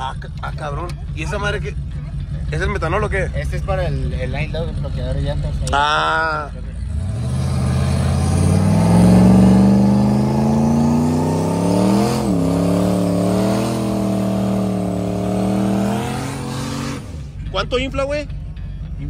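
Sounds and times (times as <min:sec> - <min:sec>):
car engine revving high: 0:06.8 - 0:17.5.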